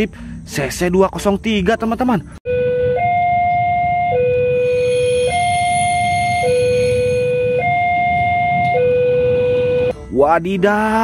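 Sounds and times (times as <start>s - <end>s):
two-tone electronic siren: 2.5s - 9.9s
low rumble: 4.5s - 9.9s.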